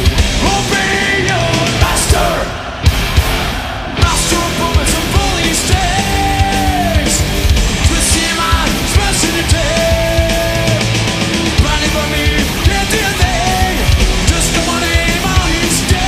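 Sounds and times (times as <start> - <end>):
distorted electric guitars: 0.0 - 16.0
drums: 0.0 - 16.0
man singing into microphone: 0.4 - 2.6, 4.0 - 10.8, 11.6 - 16.0.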